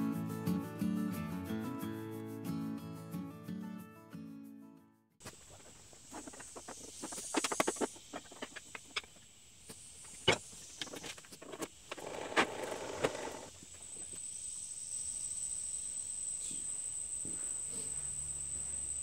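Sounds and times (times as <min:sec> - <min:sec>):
wooden strips clattering: 0:05.2 - 0:09.3, 0:10.1 - 0:13.6.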